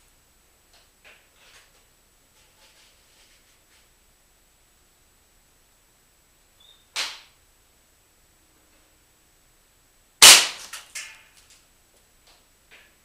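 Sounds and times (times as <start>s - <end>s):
air rifle shot crack: 10.2s - 10.7s.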